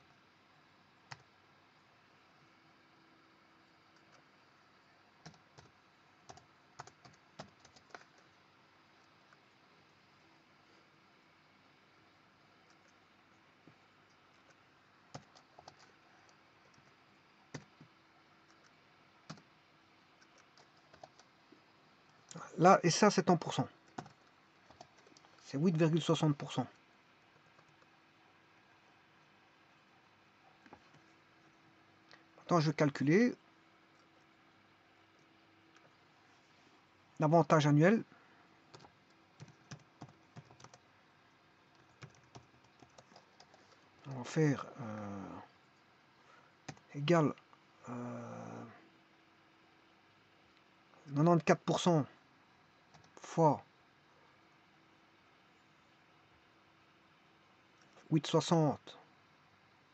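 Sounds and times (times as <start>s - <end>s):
faint keyboard typing: 0.0s - 2.7s, 3.6s - 10.1s, 11.2s - 28.1s, 30.4s - 32.8s, 33.8s - 34.4s, 37.2s - 47.6s, 52.8s - 53.6s
keyboard and mouse clicks: 6.3s - 8.2s.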